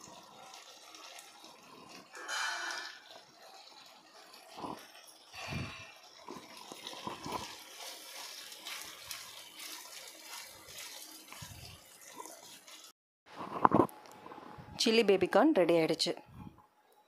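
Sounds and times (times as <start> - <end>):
sauce bubbling and sizzling: 0.0 - 13.0
spatula scraping a pan: 2.1 - 3.0.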